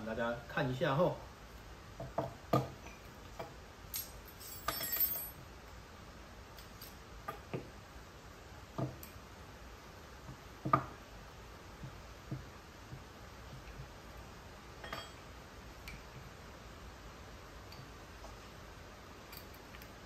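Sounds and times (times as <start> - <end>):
clicks and metallic clinks: 3.9 - 5.4, 14.8 - 15.2, 19.3 - 19.9
ringing metal clatter: 3.9 - 5.4.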